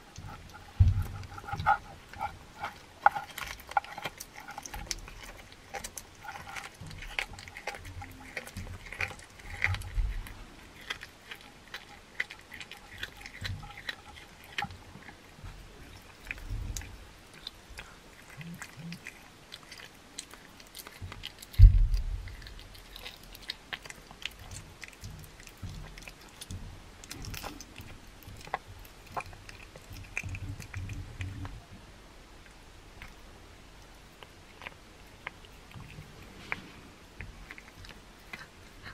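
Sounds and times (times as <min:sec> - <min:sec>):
wet crunching clicks: 0:00.0 - 0:31.6, 0:32.4 - 0:36.2
cat chewing raw meat: 0:00.0 - 0:38.9.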